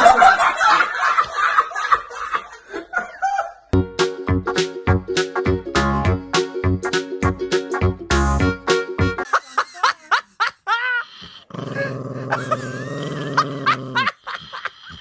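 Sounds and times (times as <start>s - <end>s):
dog growling: 11.4s - 14.2s.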